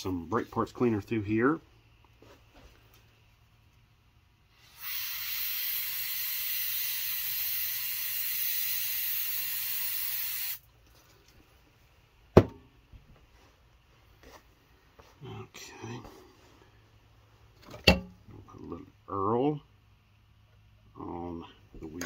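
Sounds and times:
aerosol spray hissing: 4.5s - 10.6s.

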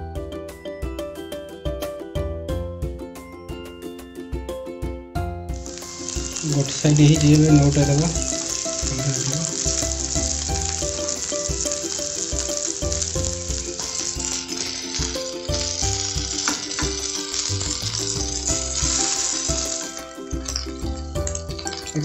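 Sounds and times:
background music: 0.0s - 22.0s
chicken sizzling in hot oil: 5.5s - 22.0s.

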